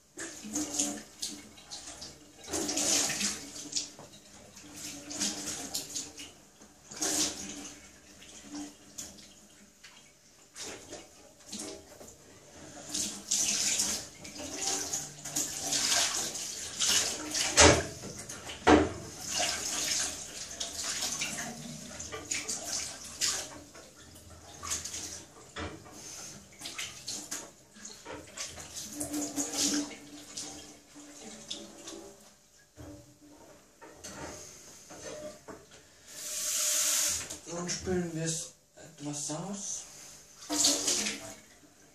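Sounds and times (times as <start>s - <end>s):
water splashing in a metal sink: 0.0s - 35.6s, 40.4s - 41.9s.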